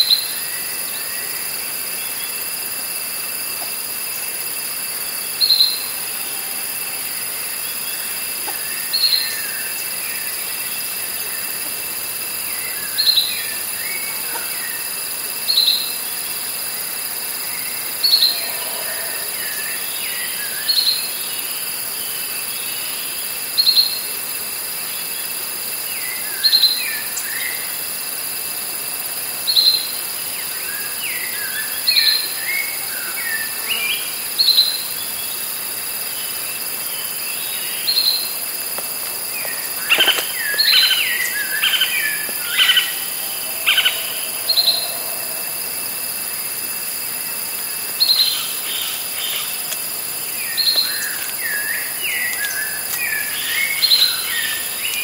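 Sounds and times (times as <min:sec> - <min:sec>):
cicadas droning: 0:00.0 - 0:55.0
birds calling: 0:39.2 - 0:45.2.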